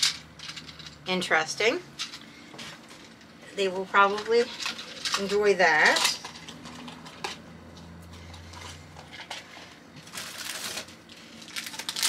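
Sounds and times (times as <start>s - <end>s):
plastic toys clattering: 0.0s - 1.0s, 4.0s - 7.4s, 8.3s - 12.0s
plastic bag rustling: 8.2s - 12.0s.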